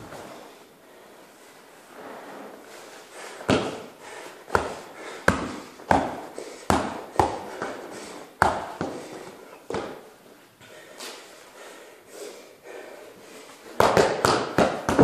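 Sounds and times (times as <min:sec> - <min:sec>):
punches smacking punching bag: 0:04.5 - 0:07.7, 0:13.8 - 0:15.0.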